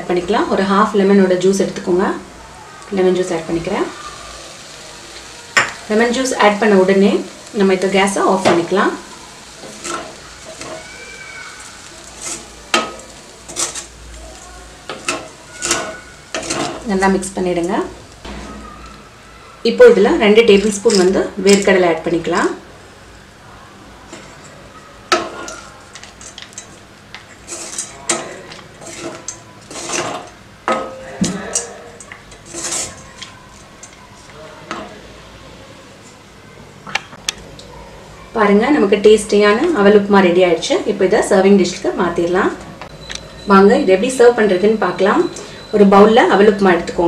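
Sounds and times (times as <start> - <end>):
spatula stirring rice in pan: 4.5 - 17.0, 24.1 - 30.9, 31.6 - 35.0
spatula scraping metal: 9.6 - 10.8, 11.9 - 14.0, 14.9 - 16.9, 26.2 - 33.9.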